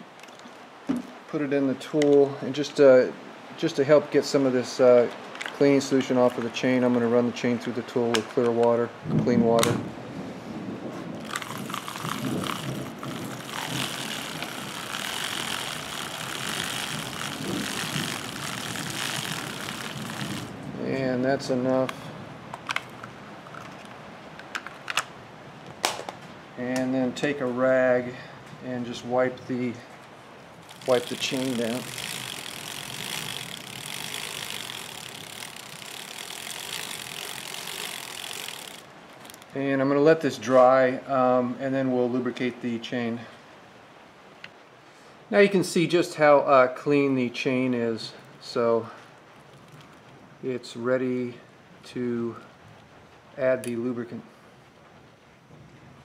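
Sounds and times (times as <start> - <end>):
bicycle chain whirring rattle: 11.2 - 22.1, 30.6 - 39.6.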